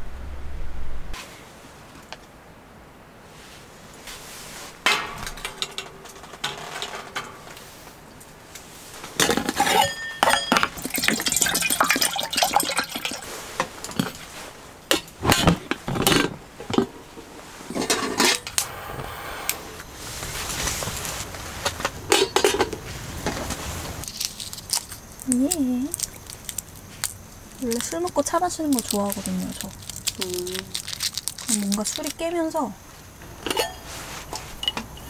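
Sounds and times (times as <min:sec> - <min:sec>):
cups and dishes clinking: 0:09.2 - 0:13.2, 0:22.1 - 0:22.8, 0:33.2 - 0:35.0.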